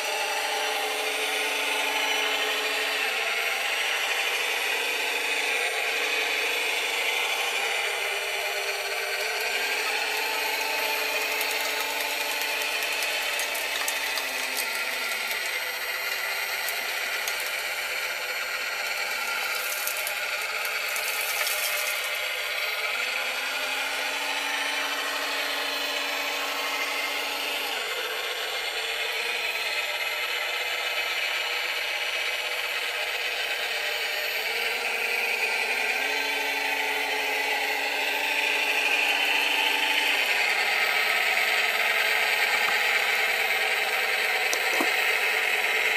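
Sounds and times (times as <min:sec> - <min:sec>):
electric motor whine: 0:00.0 - 0:45.9.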